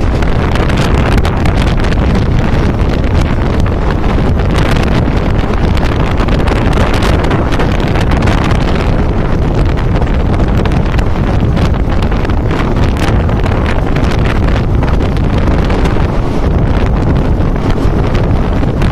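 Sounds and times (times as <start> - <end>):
train wheels rumbling on rails: 0.0 - 18.9
wind rushing over microphone: 0.0 - 18.9.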